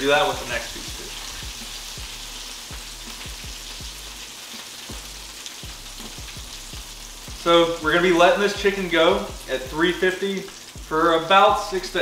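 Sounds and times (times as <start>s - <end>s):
chicken sizzling in oil: 0.0s - 12.0s
soft low thumps: 1.0s - 4.1s, 4.9s - 9.9s, 10.8s - 11.0s.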